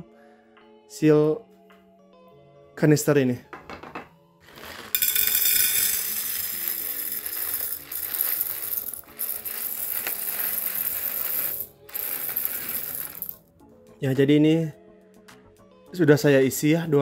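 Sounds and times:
coffee beans pouring into metal canister: 4.5s - 13.4s.

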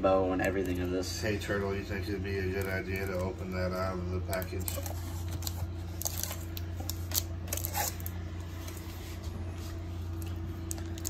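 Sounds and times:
steady low hum: 0.0s - 11.0s
cardboard and plastic rustling: 2.5s - 11.0s.

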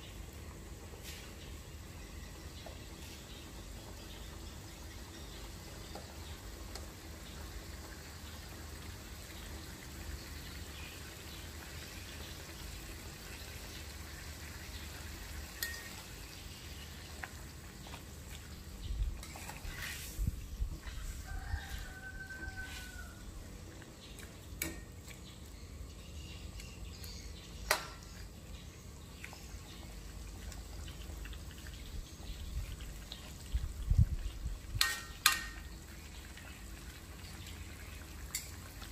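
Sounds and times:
water simmering in a wok: 0.0s - 38.9s
metal utensil scraping a wok: 19.2s - 20.3s.

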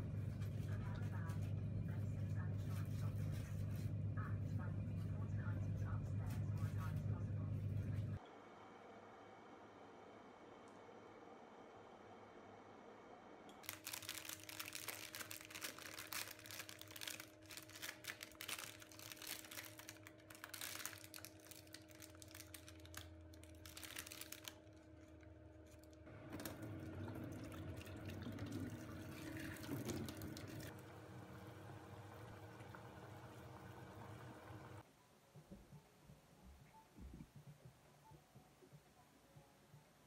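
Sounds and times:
water pouring into a metal sink: 26.3s - 34.8s.

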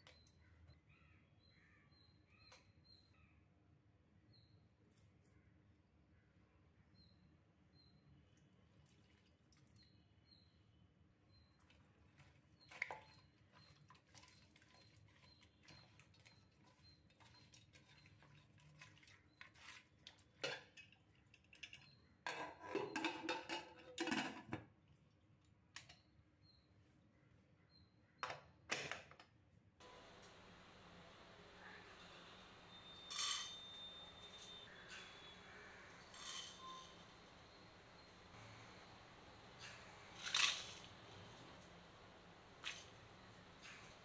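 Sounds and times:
clinks and scrapes in a pot: 12.1s - 24.7s, 30.0s - 44.0s.

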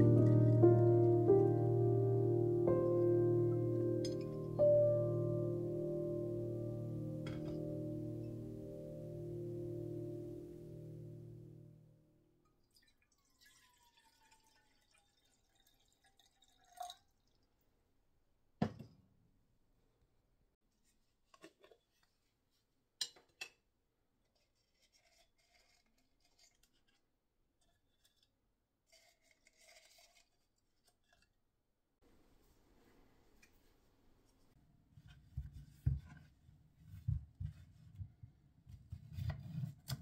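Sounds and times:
water trickling into teapot: 12.6s - 17.5s.

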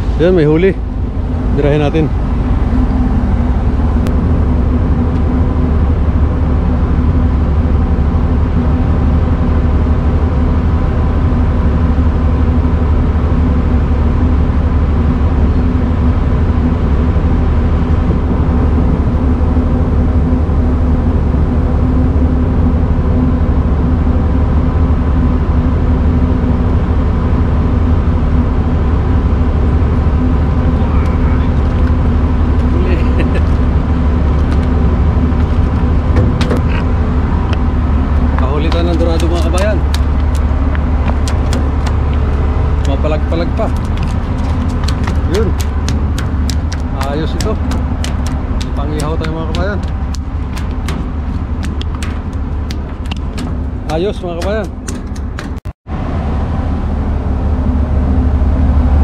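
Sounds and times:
ship engines droning: 0.0s - 59.0s
steady tones: 30.8s - 55.7s.

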